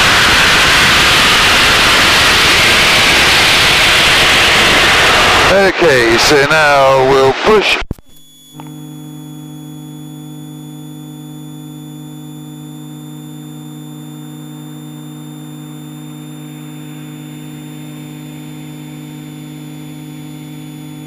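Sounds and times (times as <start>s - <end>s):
electrical hum on intercom: 5.4s - 12.6s.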